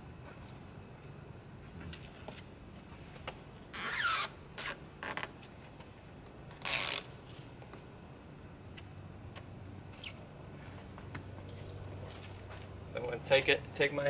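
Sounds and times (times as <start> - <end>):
backing liner peeled off tape: 3.7 - 5.4, 6.5 - 7.5.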